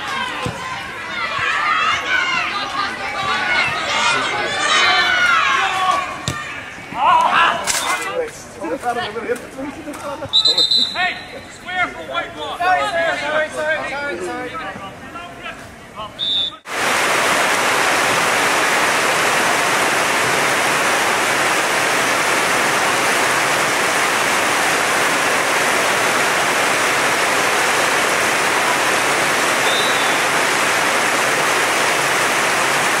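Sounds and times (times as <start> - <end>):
heavy rain pouring: 16.7 - 33.0.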